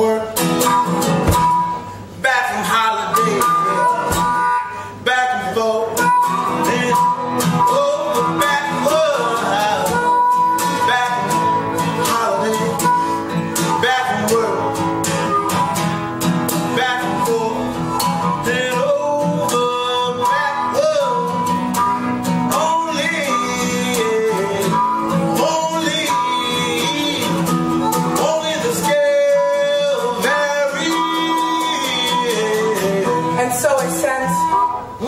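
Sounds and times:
acoustic guitar strumming: 0.0s - 35.0s
harmonica melody with bending notes: 0.0s - 35.0s.

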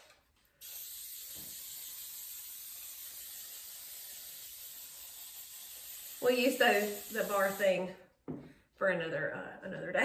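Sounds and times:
aerosol cooking spray hissing: 0.6s - 8.0s.

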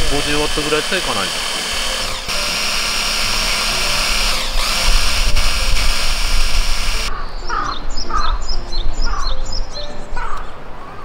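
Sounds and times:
stick blender motor whine: 0.0s - 7.1s.

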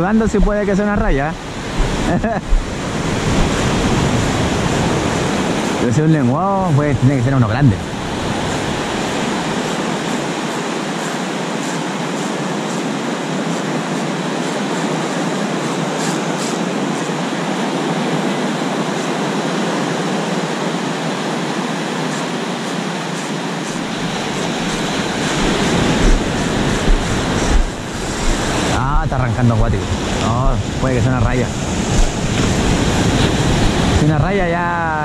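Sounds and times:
wind on the microphone: 0.0s - 10.5s, 23.7s - 35.0s
surf breaking on a beach: 0.0s - 35.0s.

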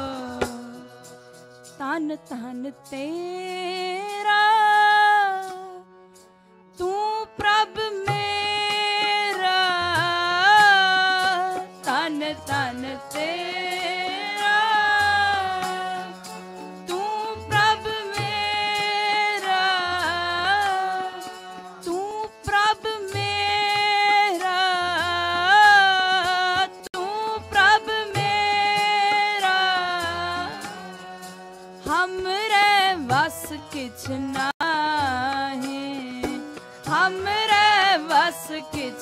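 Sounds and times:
harmonium drone: 0.0s - 39.0s
voices singing devotional phrases: 8.4s - 31.5s.

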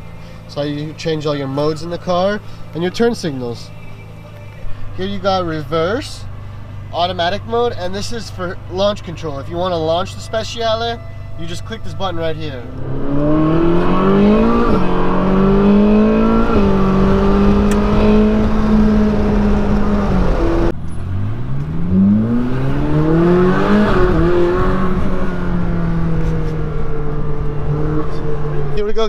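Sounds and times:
car engine revving: 11.5s - 29.0s.

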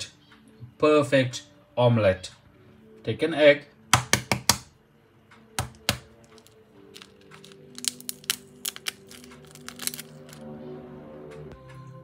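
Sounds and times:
background music: 0.0s - 12.0s
eggshells cracking on metal pan: 5.6s - 10.5s.

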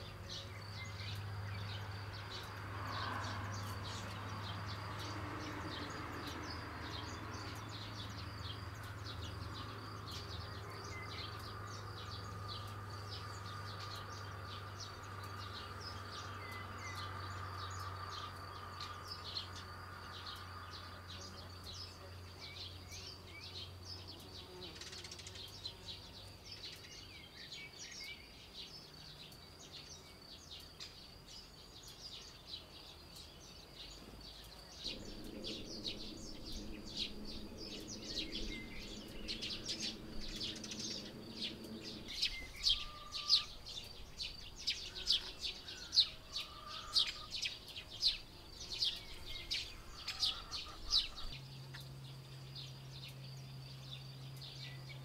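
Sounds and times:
songbirds chirping: 0.0s - 55.0s
low droning hum: 33.2s - 46.4s
steady high whine: 34.7s - 45.7s.

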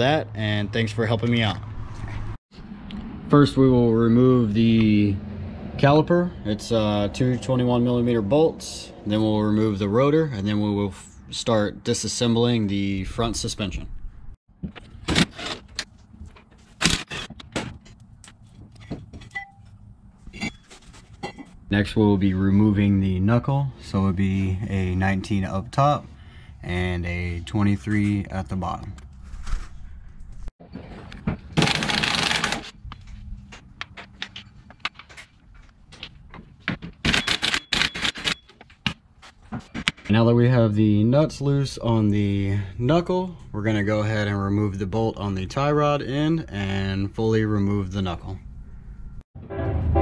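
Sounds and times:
metal clinks and knocks: 32.9s - 37.0s.

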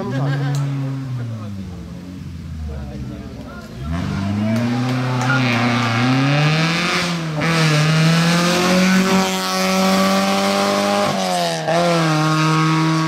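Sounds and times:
rally car engine at high revs: 3.8s - 13.0s.

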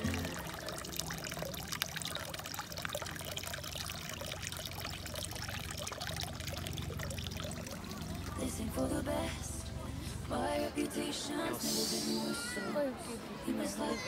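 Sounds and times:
water splashing into stone basin: 0.0s - 8.4s
low steady rumble: 0.0s - 12.0s.

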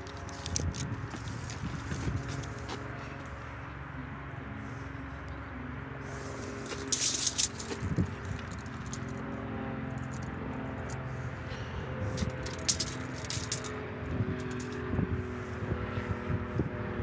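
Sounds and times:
tape measure rattling and clicking: 0.0s - 2.6s, 6.6s - 9.3s, 9.9s - 11.0s, 12.1s - 14.9s
steady low hum: 0.0s - 17.0s.

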